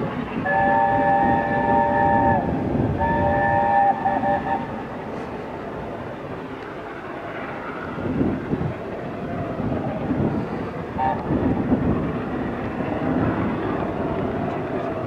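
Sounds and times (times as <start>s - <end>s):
steam locomotive exhaust beats: 0.0s - 15.0s.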